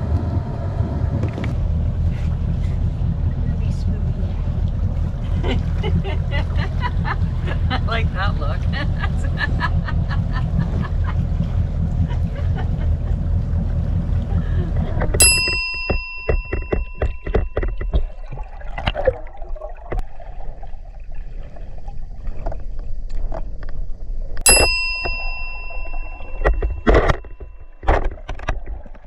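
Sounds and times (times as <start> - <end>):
boat engine rumble: 0.0 - 29.0
underwater clicks and crackles: 14.2 - 29.0
bell-like ding: 15.2 - 18.2, 24.5 - 27.8.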